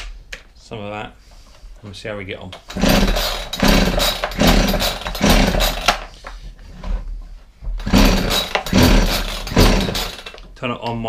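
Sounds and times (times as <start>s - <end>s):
chainsaw starter rope pulled: 2.6s - 6.1s, 7.8s - 10.5s
chainsaw engine turning over: 2.7s - 6.1s, 7.8s - 10.4s.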